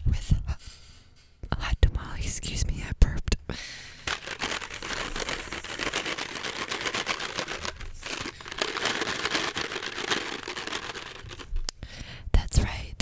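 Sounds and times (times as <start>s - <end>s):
cardboard box crinkling: 4.1s - 11.6s.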